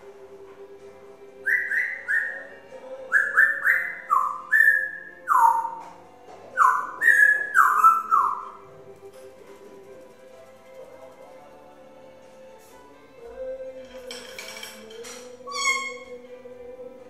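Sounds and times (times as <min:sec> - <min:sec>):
faint background music: 0:00.0 - 0:17.0
parrot whistling a tune: 0:01.4 - 0:05.8, 0:06.6 - 0:08.6, 0:15.4 - 0:16.2.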